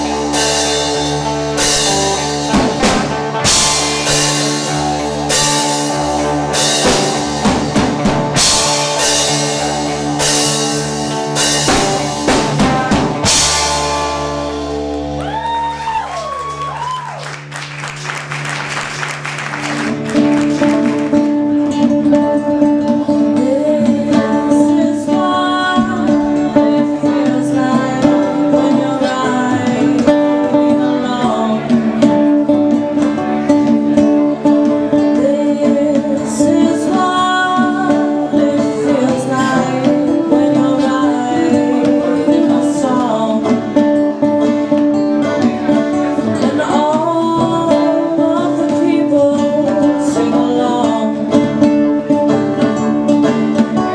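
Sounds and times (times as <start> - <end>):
banjo: 0.0 - 15.0, 19.6 - 53.9
acoustic guitar: 0.0 - 53.9
woman singing: 21.7 - 32.5, 34.6 - 44.1, 46.2 - 52.1.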